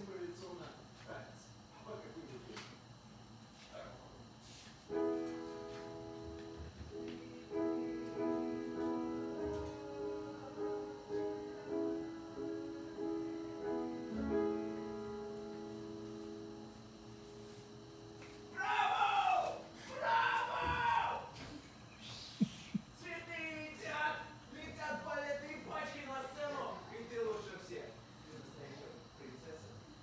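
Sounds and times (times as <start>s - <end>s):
upright piano chords: 4.9s - 18.7s.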